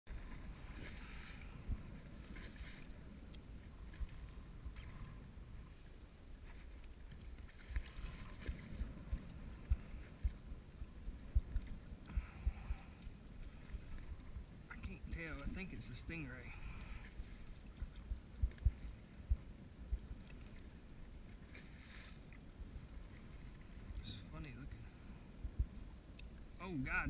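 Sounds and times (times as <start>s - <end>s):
wind on microphone: 0.1s - 5.8s, 6.4s - 21.5s
water lapping against boat hull: 0.1s - 27.0s.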